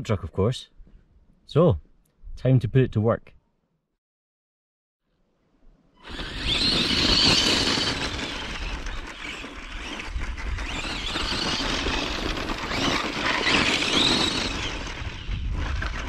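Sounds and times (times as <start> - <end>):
electric motor and gearbox whine: 6.0 - 16.0
tyres crunching on gravel: 6.2 - 16.0.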